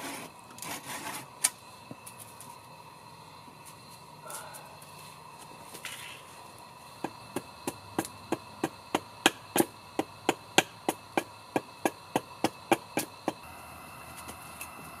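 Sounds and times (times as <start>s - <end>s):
hatchet chopping wood: 7.0s - 13.4s.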